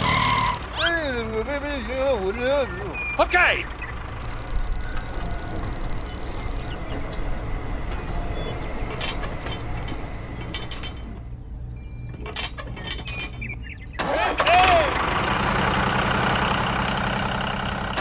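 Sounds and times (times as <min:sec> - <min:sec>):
high electronic tone with ticks: 0:04.2 - 0:06.8.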